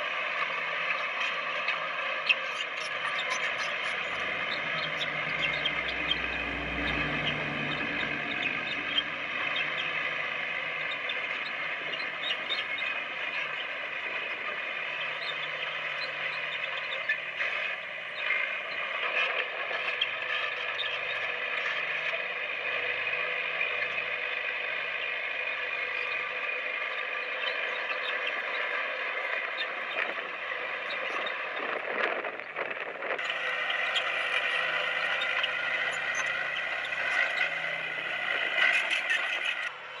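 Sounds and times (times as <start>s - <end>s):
diesel engine running: 2.5s - 40.0s
deep rumble: 2.9s - 18.2s.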